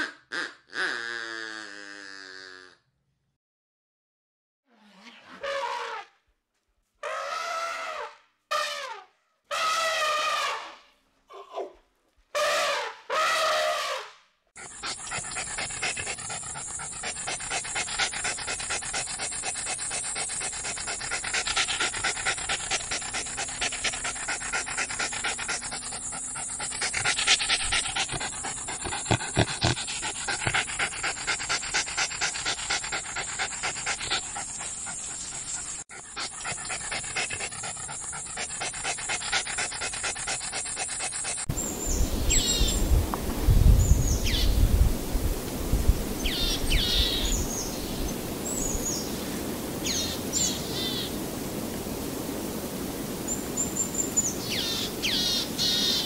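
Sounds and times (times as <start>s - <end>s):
dog panting: 14.6s - 41.6s.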